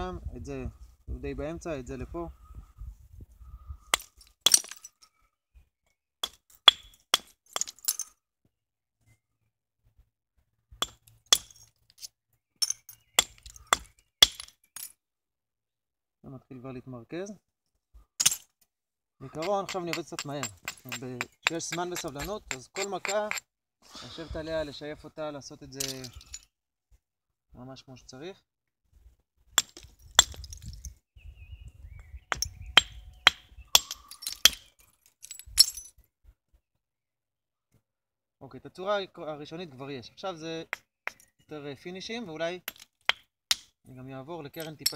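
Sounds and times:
antler striking flint: 0:10.8 - 0:14.9, 0:19.4 - 0:23.4.

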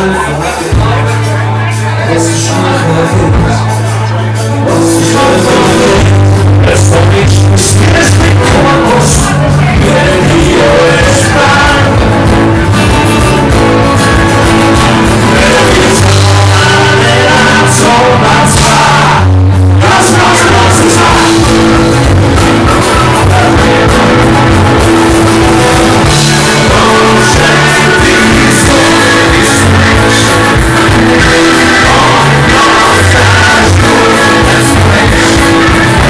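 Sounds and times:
live band playing loudly: 0:00.0 - 0:36.0
person singing: 0:00.0 - 0:36.0
strummed acoustic guitar: 0:00.0 - 0:36.0.

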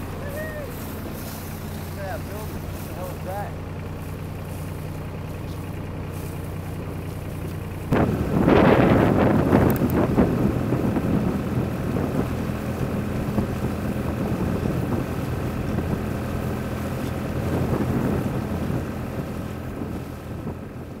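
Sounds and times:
boat motor humming: 0:00.0 - 0:21.0
wind on the microphone: 0:07.9 - 0:21.0.

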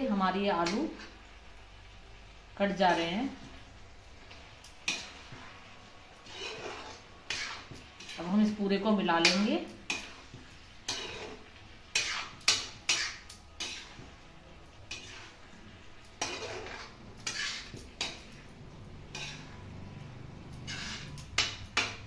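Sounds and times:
spoon scraping and clinking pot: 0:06.2 - 0:08.6, 0:09.2 - 0:14.1, 0:14.9 - 0:15.4, 0:16.0 - 0:22.0.

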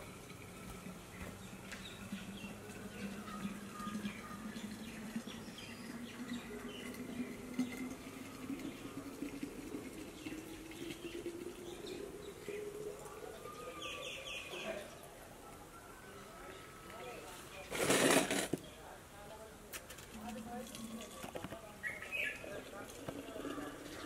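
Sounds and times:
water pouring into a flask: 0:00.0 - 0:15.1, 0:22.2 - 0:24.0.

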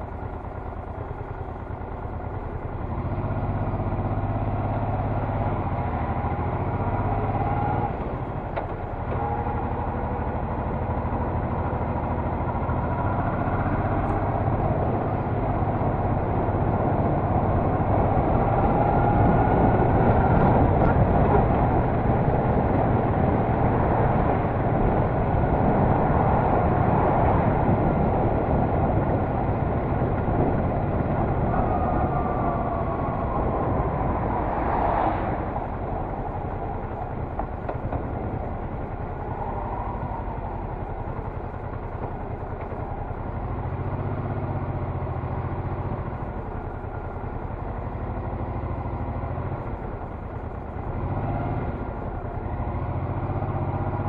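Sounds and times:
motorcycle engine running: 0:00.0 - 0:54.0
wind rushing over microphone: 0:12.4 - 0:48.2.

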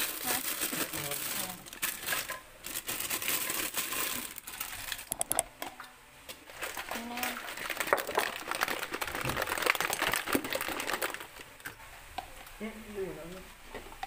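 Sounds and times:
plastic bag crinkling: 0:00.0 - 0:05.4, 0:06.4 - 0:11.7.

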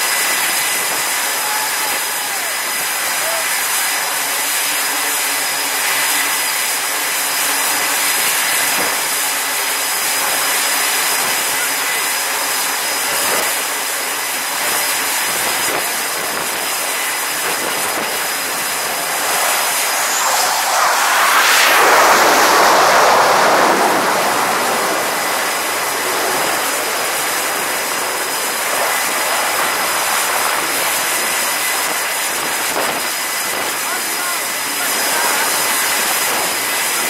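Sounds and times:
jet engine noise: 0:00.0 - 0:37.0
wind: 0:00.0 - 0:37.0
thin high whine: 0:14.6 - 0:31.8.

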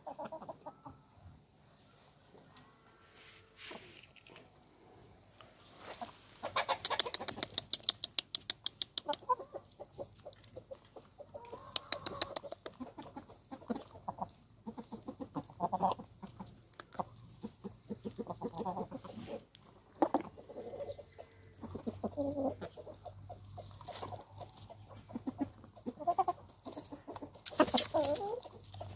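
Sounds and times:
hens clucking: 0:00.0 - 0:01.2, 0:03.6 - 0:28.9
beaks pecking at grain: 0:06.6 - 0:17.1, 0:21.6 - 0:28.9.

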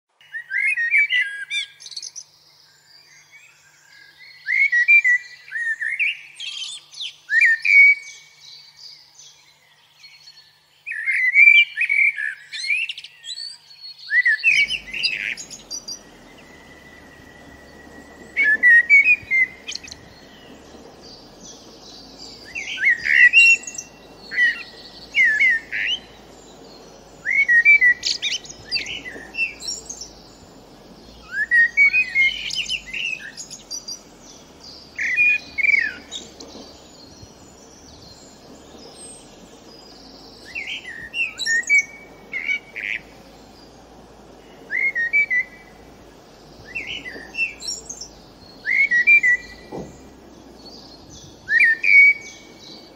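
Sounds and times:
blackbird singing: 0:00.2 - 0:52.9.

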